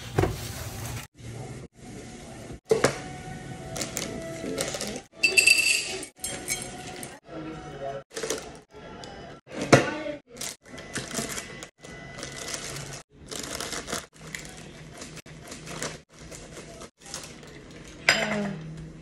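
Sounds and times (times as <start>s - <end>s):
parchment paper crinkling: 10.3s - 17.9s.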